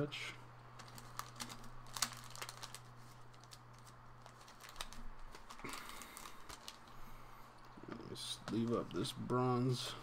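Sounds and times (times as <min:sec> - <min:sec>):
card rustle: 0:00.8 - 0:07.1.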